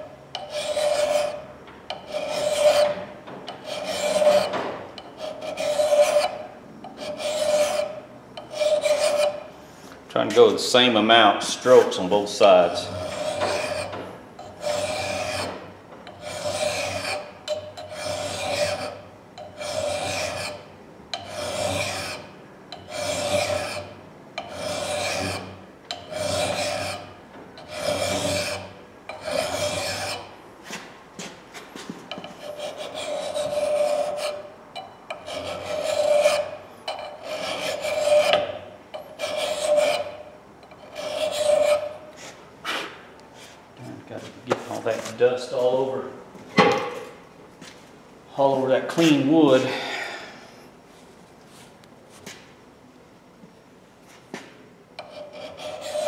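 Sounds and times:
file rasping on steel: 0.4s - 9.5s, 12.7s - 30.8s, 32.2s - 42.4s, 55.0s - 56.0s.

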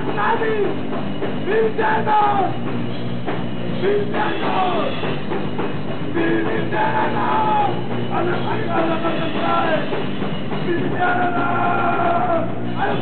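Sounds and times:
drums: 0.0s - 13.0s
sung lead vocal: 1.4s - 2.6s, 3.8s - 5.0s, 6.1s - 10.0s, 10.6s - 13.0s.

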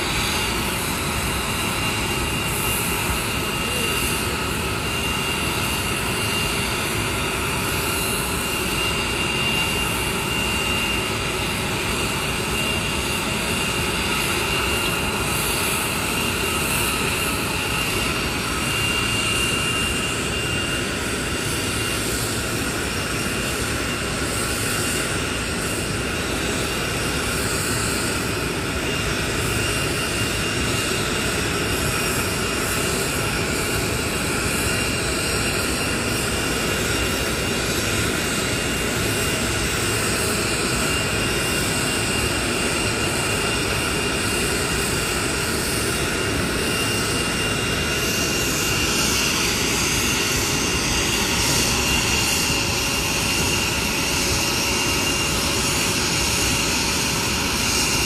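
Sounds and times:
jet engine roar with high whine: 0.0s - 58.0s.

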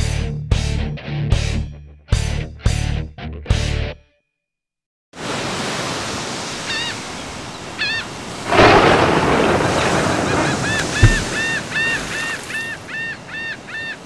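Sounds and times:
surf on shore: 5.2s - 14.0s
gulls calling: 6.6s - 14.0s
wave breaking: 8.2s - 12.6s.

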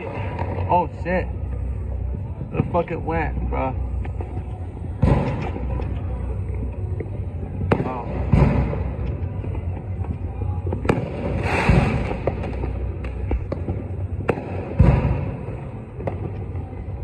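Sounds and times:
low steady rumble: 0.0s - 17.0s
firework bangs: 7.7s - 9.1s, 10.8s - 16.8s
firework crackle: 10.8s - 16.8s.

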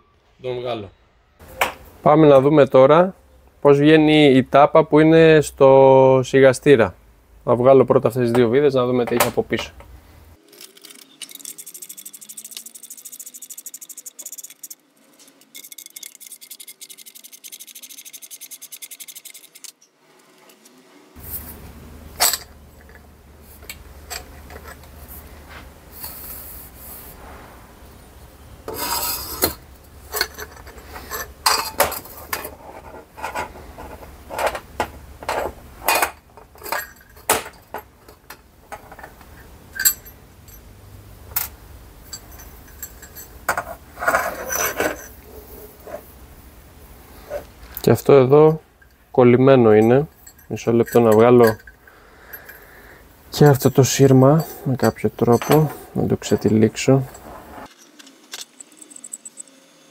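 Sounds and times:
metal rubbing and scraping: 10.4s - 40.6s, 42.0s - 46.2s, 47.0s - 52.7s, 53.3s - 59.7s
sharp metal clinks: 39.4s - 40.8s, 41.4s - 43.8s, 47.9s - 59.8s.

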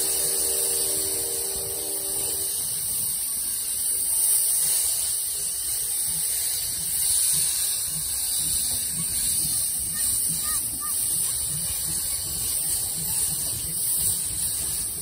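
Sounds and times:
steam hissing: 0.0s - 15.0s
steam train moving: 0.0s - 15.0s.

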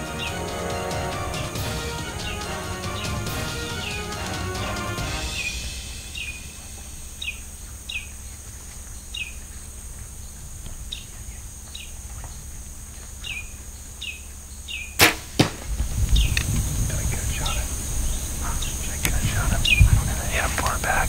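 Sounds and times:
bird chirping: 0.0s - 4.2s, 5.2s - 15.0s, 16.0s - 20.9s
insect drone: 0.0s - 21.0s
bow shot crack: 15.0s - 16.5s.

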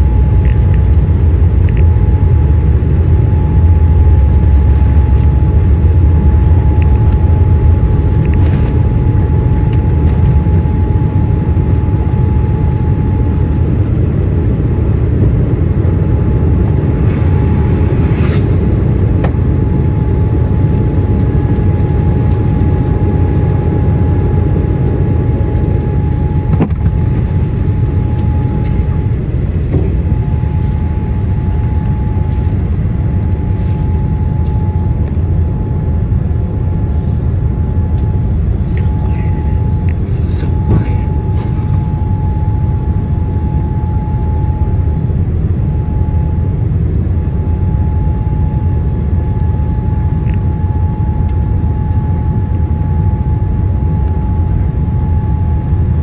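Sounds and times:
jet engine roar with whine: 0.0s - 56.0s.

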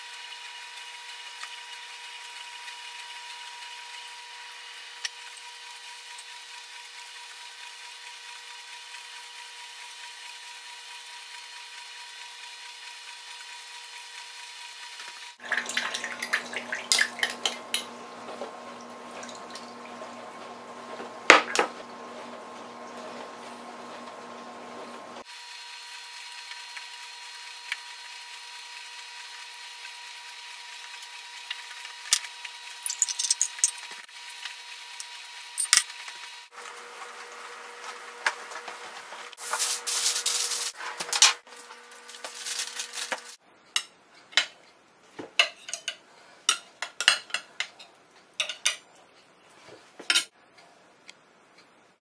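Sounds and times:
electrical hum: 15.4s - 25.2s
metal utensils clinking on glass dish: 45.4s - 47.8s, 48.4s - 48.8s.

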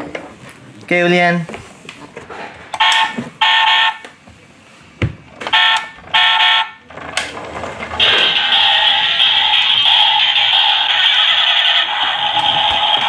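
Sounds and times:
steady electronic tone: 8.0s - 13.0s.

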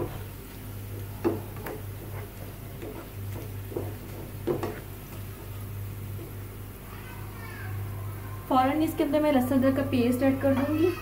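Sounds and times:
spatula scraping frying pan: 1.6s - 5.0s.

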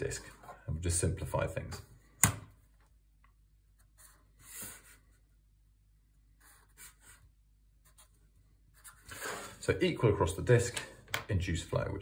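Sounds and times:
marker pen strokes: 3.7s - 5.4s, 6.2s - 9.6s.

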